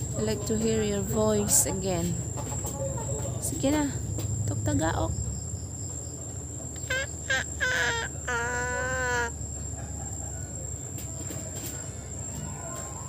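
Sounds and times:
rooster crowing: 0:06.9 - 0:13.0.

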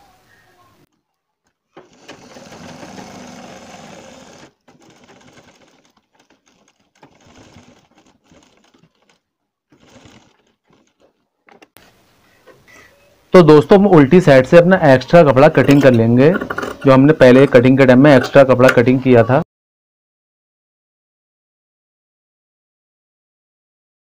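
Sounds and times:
sewing machine stitching: 0:01.7 - 0:11.8, 0:15.2 - 0:18.4.

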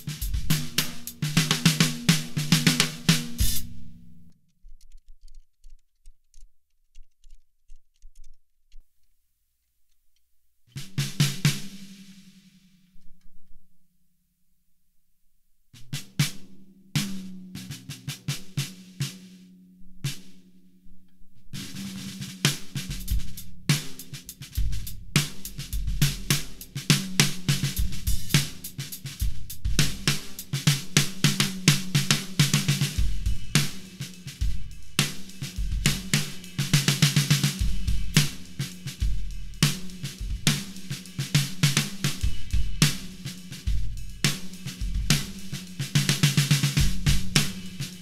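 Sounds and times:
snare drum strokes: 0:00.0 - 0:04.1, 0:10.8 - 0:12.8, 0:21.6 - 0:48.0
drum kit groove: 0:00.0 - 0:04.3, 0:10.7 - 0:12.8, 0:15.8 - 0:20.6, 0:21.5 - 0:48.0.

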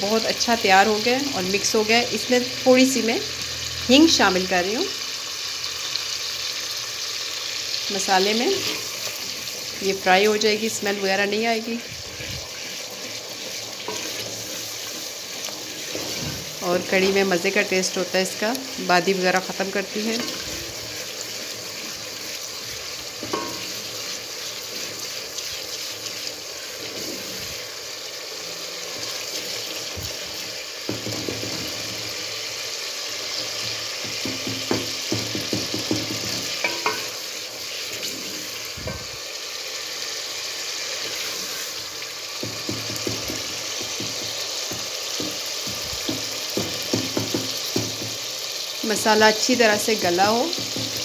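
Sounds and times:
food sizzling in a pot: 0:00.0 - 0:51.0
spoon scraping a pot: 0:08.5 - 0:09.8, 0:11.6 - 0:17.8, 0:20.0 - 0:27.6, 0:35.4 - 0:39.0.

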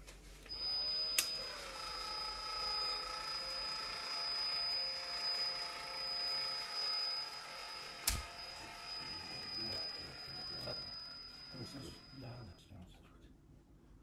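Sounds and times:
caulking gun motor whine: 0:00.5 - 0:12.4
sharp click: 0:08.0 - 0:08.3.

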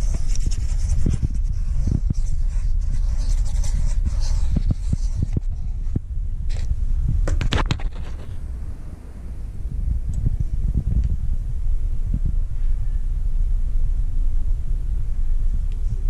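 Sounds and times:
cat scratching cardboard: 0:00.0 - 0:05.8
low rumble: 0:00.0 - 0:16.0.

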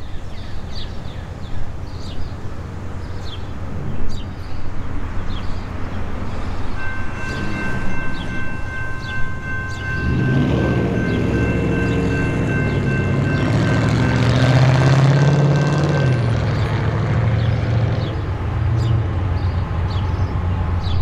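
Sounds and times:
birds chirping: 0:00.0 - 0:15.4.

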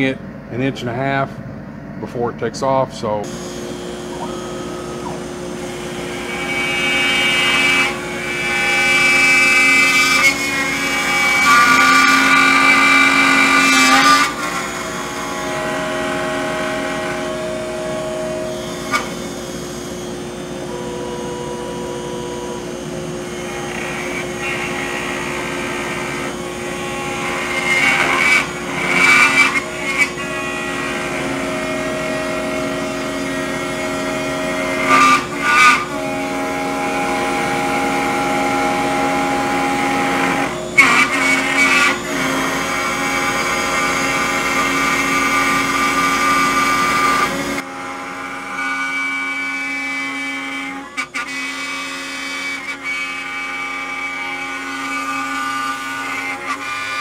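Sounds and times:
router spinning and milling wood: 0:03.2 - 0:57.0.

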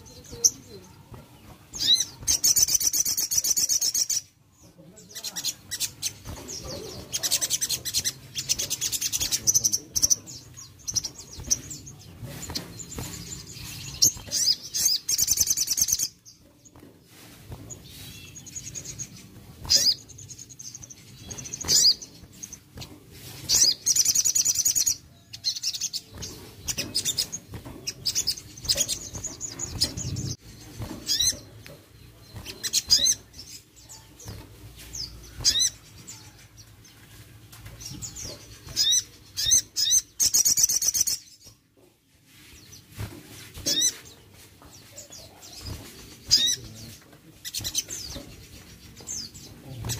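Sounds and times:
sunbird trilling: 0:01.8 - 0:04.3, 0:35.0 - 0:36.3.

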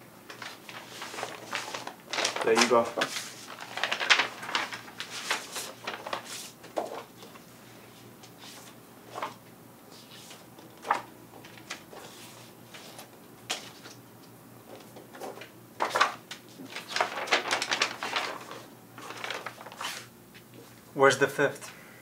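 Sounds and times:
paper rustling: 0:00.3 - 0:14.0, 0:14.6 - 0:20.8.

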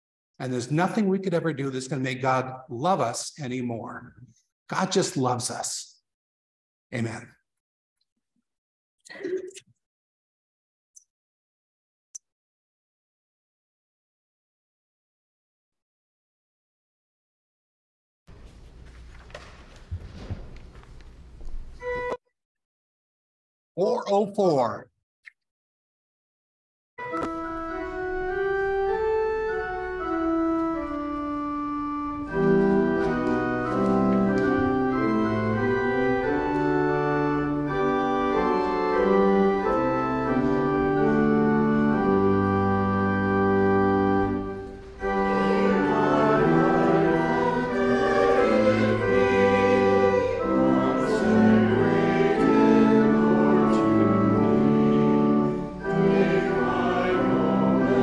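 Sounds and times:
church organ playing chords: 0:21.8 - 0:22.2, 0:27.0 - 0:58.0
small choir singing: 0:45.0 - 0:58.0.

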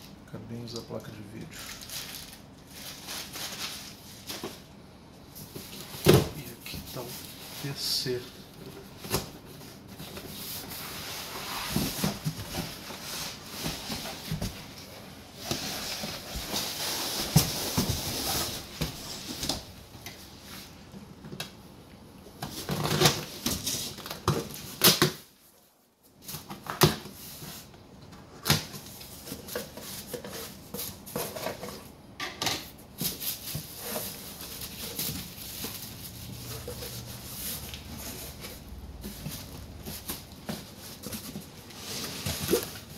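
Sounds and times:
cardboard rustling and scraping: 0:05.3 - 0:20.8, 0:26.2 - 0:31.9, 0:32.9 - 0:42.9.

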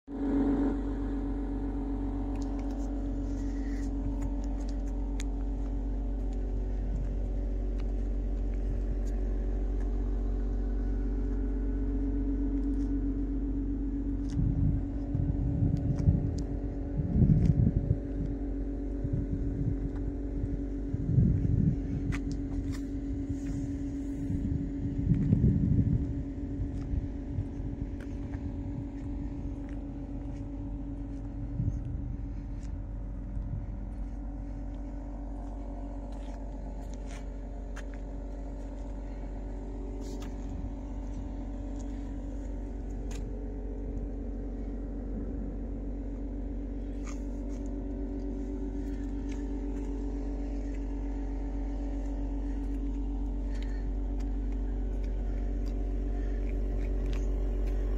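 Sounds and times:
car engine idling: 0:00.0 - 0:57.9
wind buffeting microphone: 0:14.2 - 0:34.7.

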